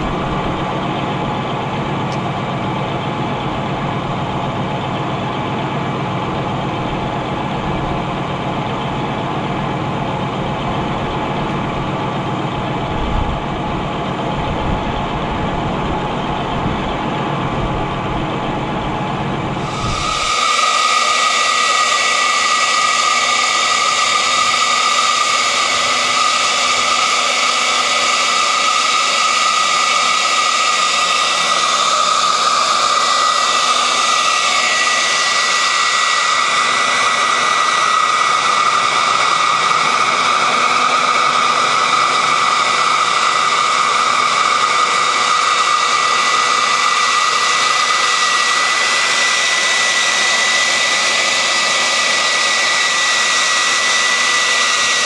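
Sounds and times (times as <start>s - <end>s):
electric motor whine: 0.0s - 55.0s
water pump hiss: 19.5s - 55.0s.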